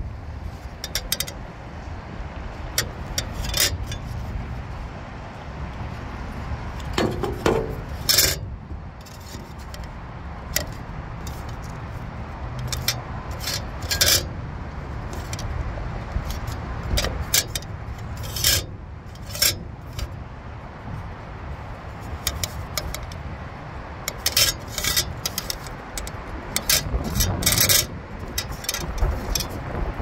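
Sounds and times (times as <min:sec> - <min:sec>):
metal scrapes and clinks: 0:00.6 - 0:01.4, 0:02.8 - 0:04.3, 0:06.8 - 0:09.9, 0:10.5 - 0:12.0, 0:12.6 - 0:14.4, 0:15.0 - 0:15.5, 0:16.2 - 0:20.2, 0:22.0 - 0:23.2, 0:24.0 - 0:29.6.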